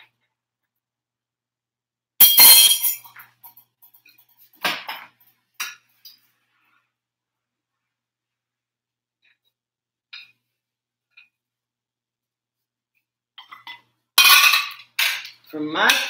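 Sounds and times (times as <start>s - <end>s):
plates clattering and clinking: 13.4s - 16.0s.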